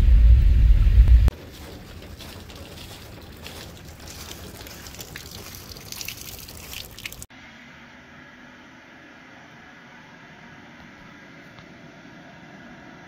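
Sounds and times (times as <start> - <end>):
footsteps in wet snow: 1.3 - 7.3.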